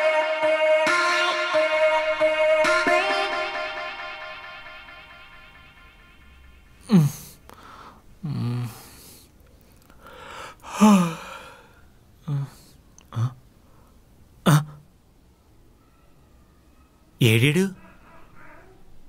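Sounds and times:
man sighing groans: 0:06.8 - 0:09.1, 0:10.3 - 0:13.4, 0:14.4 - 0:14.8
man grunting: 0:10.7 - 0:11.3, 0:14.5 - 0:14.8.

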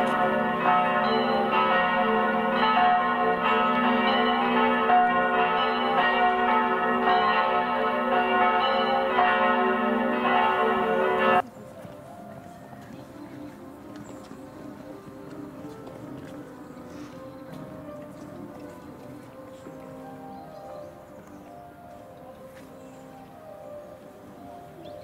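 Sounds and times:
church bells ringing: 0:00.0 - 0:11.5, 0:14.6 - 0:25.0.

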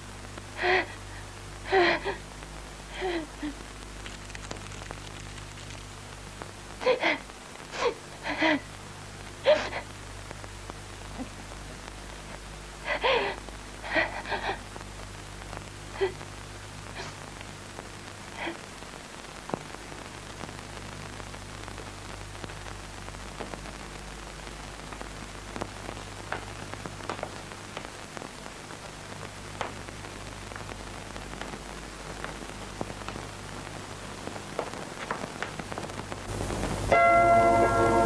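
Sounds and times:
low electrical hum: 0:00.0 - 0:38.0
steady hiss: 0:00.0 - 0:38.0
faint clicks: 0:03.8 - 0:06.5, 0:30.6 - 0:33.3.

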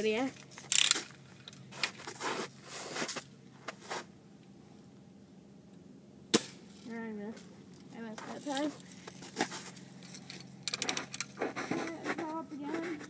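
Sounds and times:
soft scrapes and rustles: 0:01.7 - 0:04.1, 0:08.1 - 0:10.3, 0:11.4 - 0:13.0
bb gun firing snap: 0:06.3 - 0:06.6.

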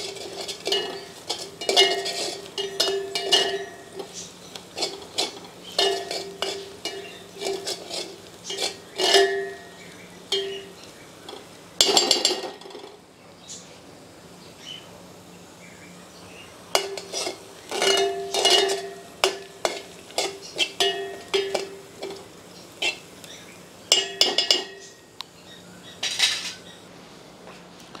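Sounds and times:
metal spoon scraping metal pot: 0:00.0 - 0:12.9, 0:16.8 - 0:23.1.

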